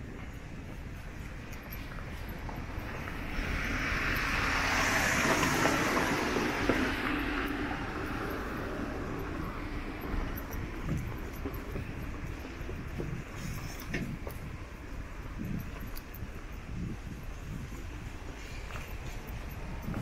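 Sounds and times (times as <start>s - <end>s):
car passing by: 2.3s - 11.5s.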